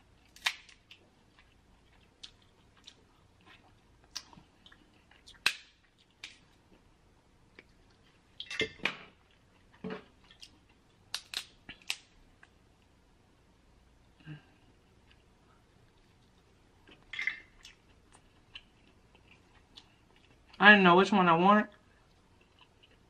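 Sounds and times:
crab shells cracking: 0.3s - 1.0s, 11.1s - 12.1s.

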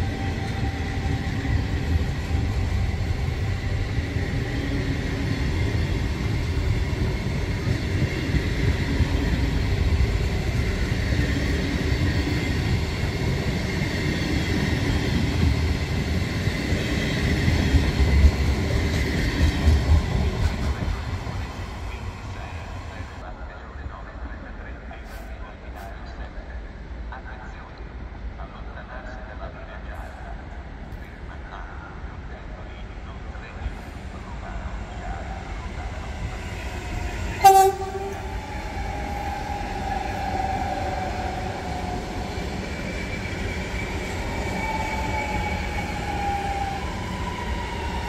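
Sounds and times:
train wheels rumbling on rails: 0.0s - 23.2s, 33.5s - 48.0s.

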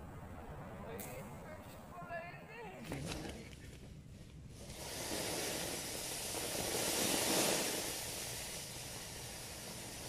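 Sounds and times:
firework fountain hissing: 4.1s - 10.0s.

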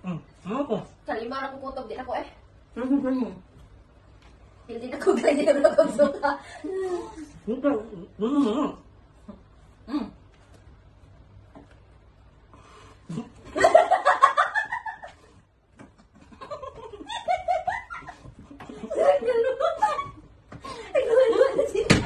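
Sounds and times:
woman laughing: 16.4s - 20.3s.

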